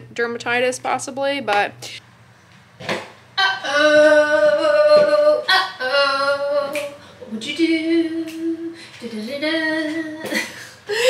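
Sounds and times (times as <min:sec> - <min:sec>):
woman singing unaccompanied: 0:03.4 - 0:10.6.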